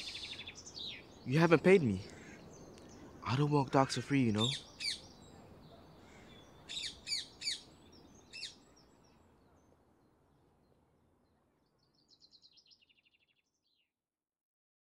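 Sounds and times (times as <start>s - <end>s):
descending bird trill: 0.0s - 5.1s
outdoor background hiss: 0.0s - 13.2s
songbirds chirping: 0.0s - 14.0s.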